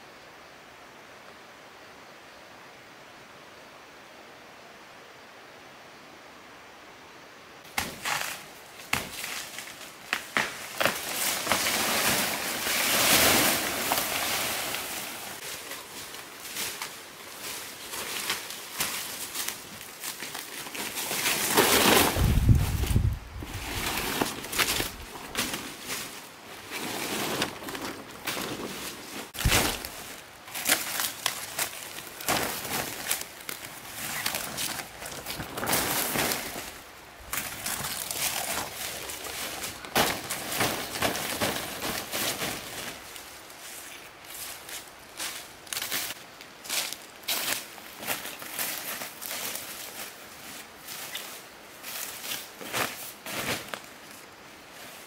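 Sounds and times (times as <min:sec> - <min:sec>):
rustling foliage and leaves: 0:00.0 - 0:55.0
twigs snapping: 0:07.8 - 0:11.8, 0:29.4 - 0:42.1.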